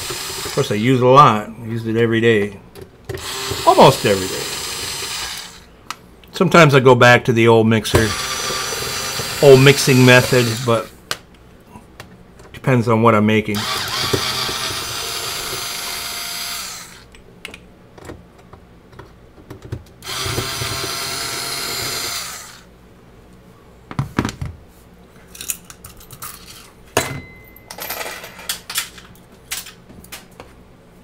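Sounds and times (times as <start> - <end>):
cordless power screwdriver running: 0.0 - 0.6, 3.2 - 5.6, 8.1 - 10.9, 13.6 - 17.0, 20.0 - 22.7.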